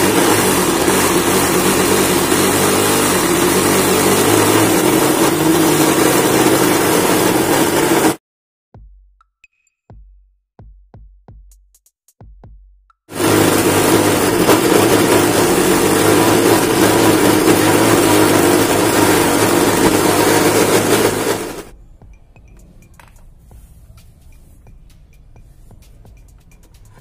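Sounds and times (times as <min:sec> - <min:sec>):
mixer grinder motor running: 0:00.0 - 0:08.2, 0:13.1 - 0:21.7.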